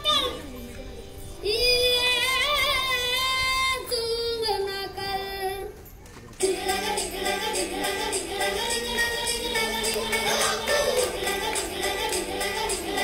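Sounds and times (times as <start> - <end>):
high solo voice singing: 6.4 - 13.0
several voices singing together: 6.4 - 13.0.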